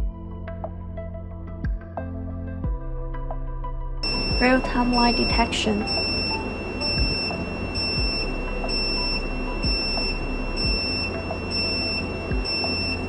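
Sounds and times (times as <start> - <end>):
high-pitched alarm beeping: 4.0 - 13.0.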